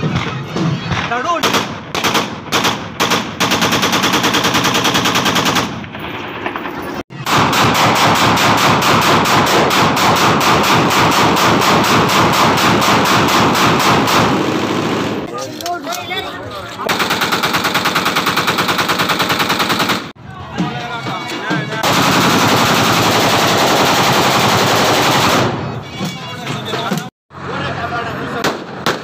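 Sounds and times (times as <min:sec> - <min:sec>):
automatic gunfire bursts: 0:01.4 - 0:05.8, 0:07.2 - 0:15.2, 0:16.9 - 0:20.1, 0:21.8 - 0:25.6.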